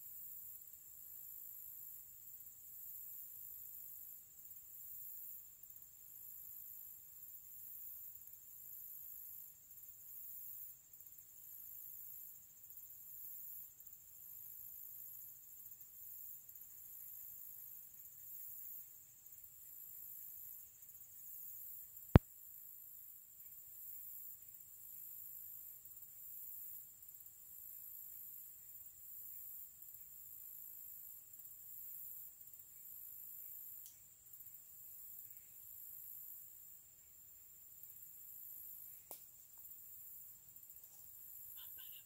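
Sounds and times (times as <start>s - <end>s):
high-pitched insect chorus: 0.0s - 42.0s.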